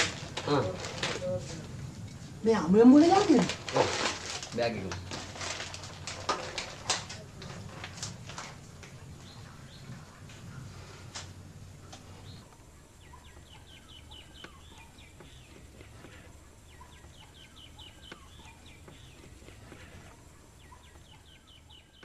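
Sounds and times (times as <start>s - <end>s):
low steady hum: 0.0s - 22.0s
faint bird chirps: 11.7s - 22.0s.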